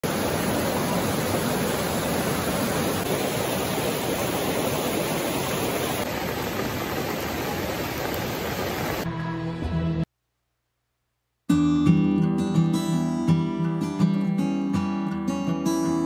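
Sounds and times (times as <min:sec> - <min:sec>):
hiss of rain: 0:00.0 - 0:09.1
river rushing over boulders: 0:00.0 - 0:09.1.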